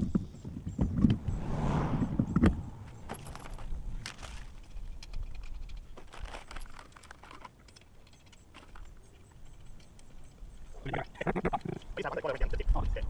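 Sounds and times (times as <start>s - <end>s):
small objects clicking: 3.1s - 10.4s.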